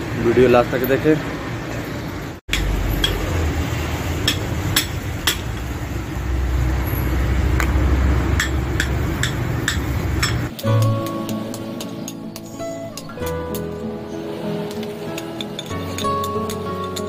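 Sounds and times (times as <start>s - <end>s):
steel rod clinking on metal: 14.7s - 17.0s.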